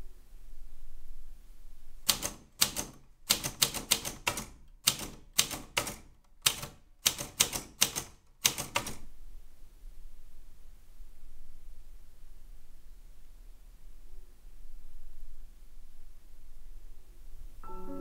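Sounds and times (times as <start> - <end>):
typewriter keys clacking: 2.0 - 9.0.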